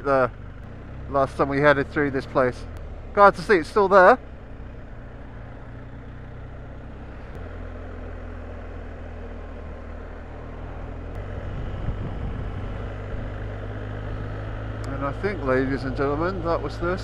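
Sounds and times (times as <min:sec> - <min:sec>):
motorcycle engine running: 0:00.0 - 0:17.0
wind noise: 0:11.3 - 0:13.4.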